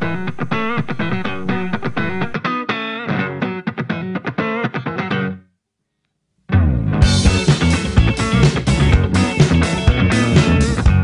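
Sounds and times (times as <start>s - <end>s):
guitar-driven music: 0.0s - 5.5s, 6.5s - 11.0s
loud music: 6.5s - 11.0s.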